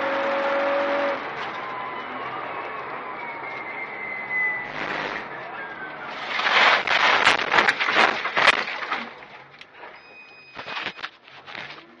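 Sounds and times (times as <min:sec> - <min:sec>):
steady high whine: 0:04.6 - 0:05.4.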